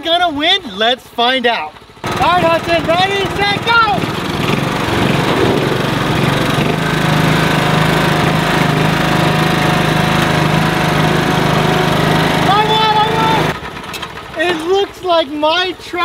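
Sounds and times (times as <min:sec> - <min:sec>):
small tractor engines running: 0:00.0 - 0:16.0.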